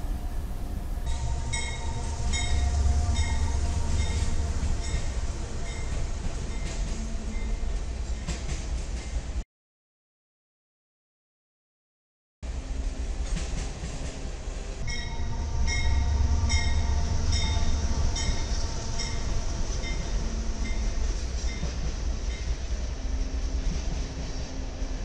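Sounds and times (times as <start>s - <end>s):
freight train rumbling past: 0.0s - 9.4s, 12.4s - 25.0s
bell striking: 1.1s - 5.9s, 14.9s - 20.9s.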